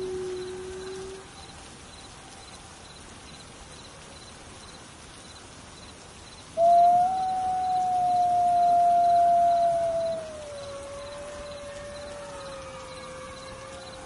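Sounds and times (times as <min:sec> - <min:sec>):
wolf howling: 0:00.0 - 0:01.2, 0:06.6 - 0:14.0.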